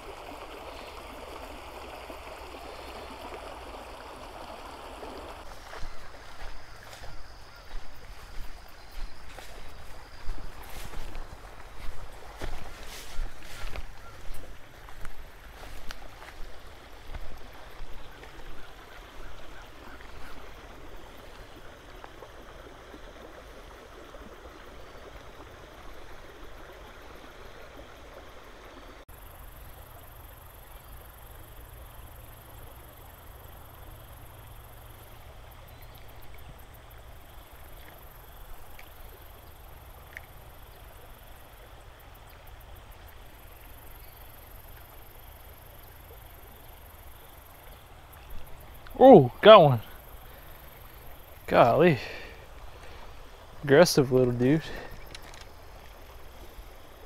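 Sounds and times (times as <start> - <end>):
outdoor background hiss: 0.0 - 57.0
footsteps through tall grass: 5.1 - 22.2.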